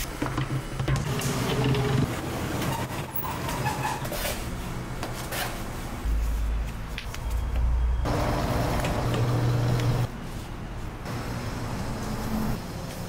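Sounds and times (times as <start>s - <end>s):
dough sheeter motor humming: 8.1s - 10.1s.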